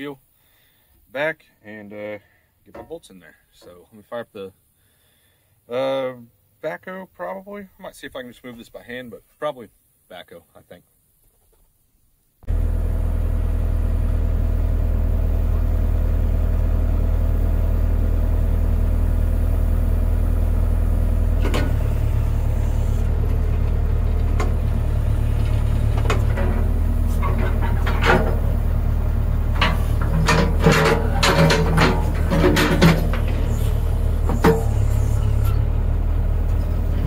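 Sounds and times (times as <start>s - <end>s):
metal knocks and clanks: 2.7s - 3.1s, 23.3s - 35.5s
diesel engine running: 12.5s - 37.0s.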